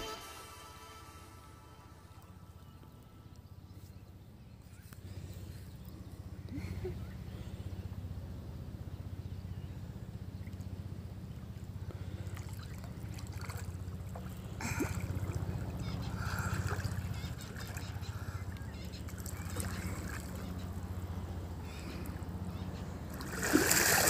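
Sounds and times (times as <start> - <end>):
steady low hum: 0.0 - 24.0
water splashing and sloshing: 10.4 - 24.0
swimming stroke splashes: 12.0 - 21.0, 23.0 - 24.0.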